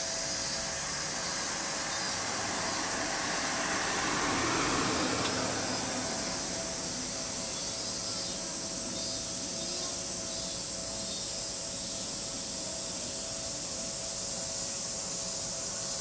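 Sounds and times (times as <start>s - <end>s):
distant electric train: 0.0s - 16.0s
insect chorus drone: 0.0s - 16.0s.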